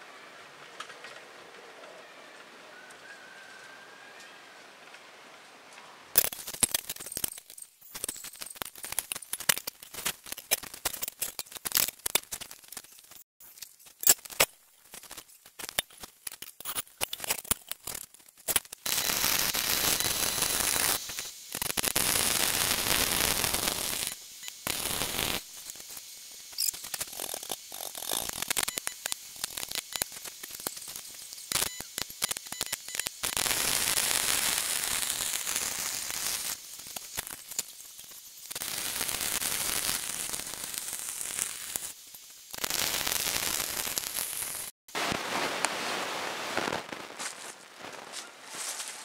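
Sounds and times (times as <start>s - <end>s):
arc welder crackling and hissing: 6.2s - 48.9s.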